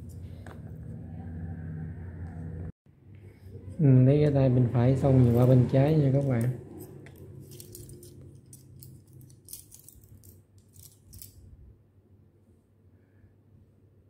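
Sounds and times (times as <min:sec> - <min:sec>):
metal tools clinking: 0:07.1 - 0:11.6.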